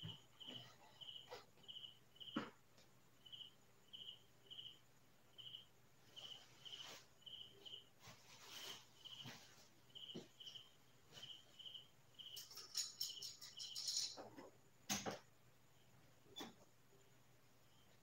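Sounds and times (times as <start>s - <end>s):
faint cricket chirping: 0.0s - 18.0s
faint knocks and rustles: 8.0s - 15.4s.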